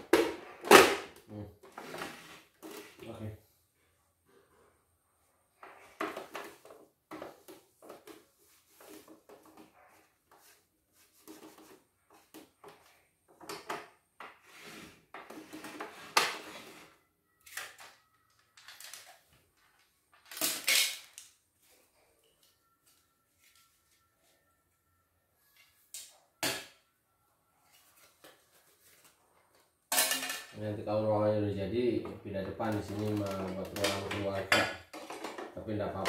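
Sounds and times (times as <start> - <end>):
plastic parts clattering and clicking: 17.5 - 21.4, 32.7 - 34.3.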